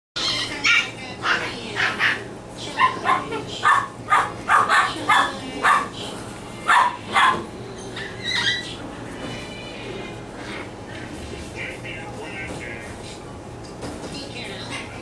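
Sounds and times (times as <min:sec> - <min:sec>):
puppies yipping and barking: 0:00.2 - 0:06.0, 0:06.6 - 0:08.8.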